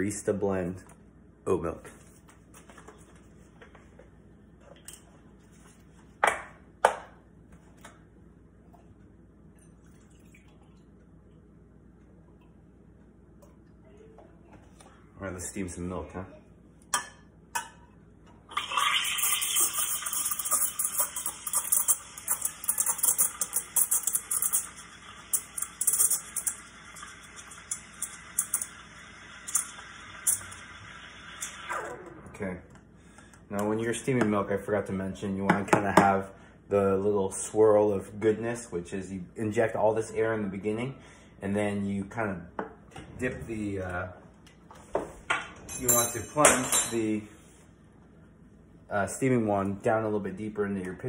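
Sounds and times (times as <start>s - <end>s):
milk frothing crackle: 18.5s - 32.4s.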